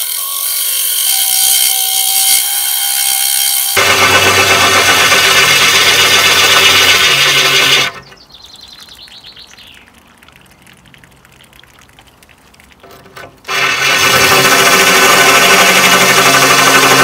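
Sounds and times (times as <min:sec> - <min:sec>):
drill grinding through glass: 0:00.0 - 0:08.1, 0:13.5 - 0:17.0
water trickling onto glass: 0:08.1 - 0:13.5.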